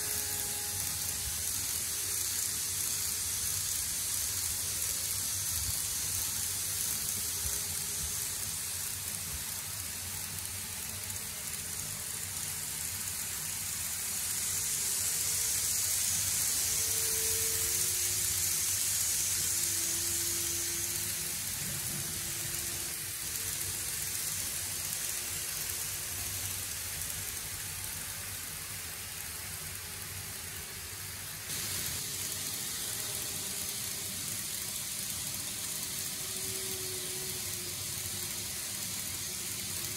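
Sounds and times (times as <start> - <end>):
model train wheels and motors hissing: 0.0 - 39.9
faint gliding whine: 13.0 - 23.8.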